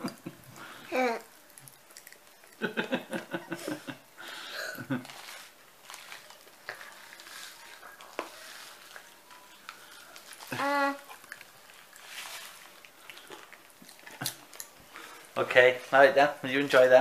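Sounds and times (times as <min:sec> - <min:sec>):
plastic sweet packet crinkling: 0:04.8 - 0:17.0.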